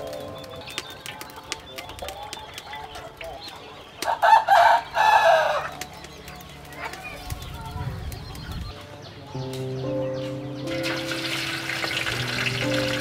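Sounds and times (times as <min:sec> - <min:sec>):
small birds chirping: 0:00.0 - 0:13.0
rooster crowing: 0:04.1 - 0:05.7.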